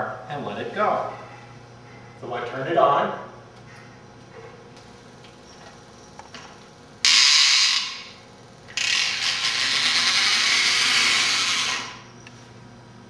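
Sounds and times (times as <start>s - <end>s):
toy car spring motor whirring: 7.1s - 8.1s, 8.7s - 12.0s.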